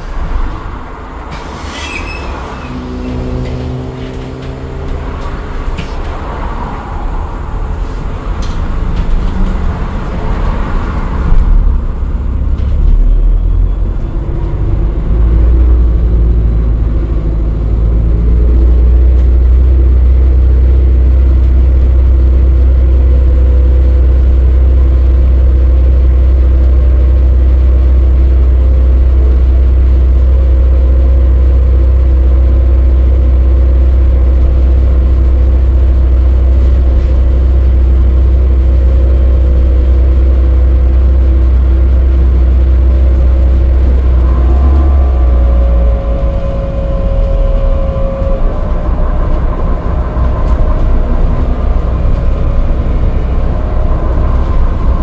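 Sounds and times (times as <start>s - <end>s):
bus engine rumble: 0.0s - 55.0s
faint steady whine: 22.0s - 55.0s.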